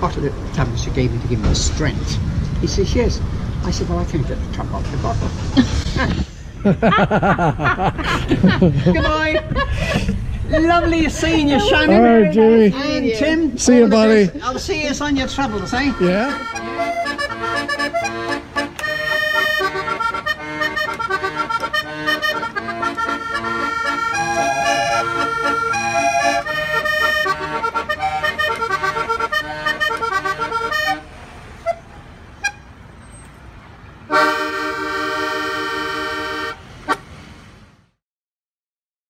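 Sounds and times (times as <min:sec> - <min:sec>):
button accordion playing: 0:15.2 - 0:32.7, 0:34.1 - 0:37.0.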